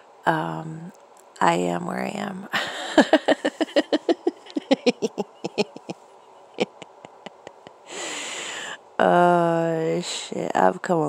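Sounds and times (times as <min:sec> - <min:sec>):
woman laughing breathily: 0:02.5 - 0:08.8
long breath: 0:07.8 - 0:08.9.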